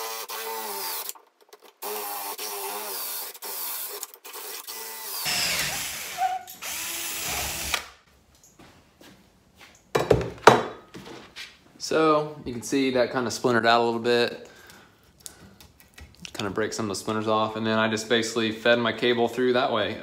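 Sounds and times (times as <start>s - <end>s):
cordless drill whining: 0.0s - 1.2s, 1.8s - 8.0s
drill bit splintering wood: 0.0s - 1.2s, 1.8s - 8.0s.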